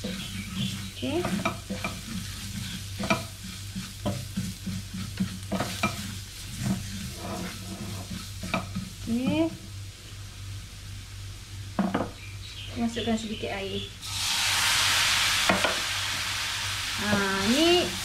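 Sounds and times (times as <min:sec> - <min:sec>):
spatula scraping frying pan: 0:00.0 - 0:09.6
frying sizzle: 0:00.0 - 0:18.0.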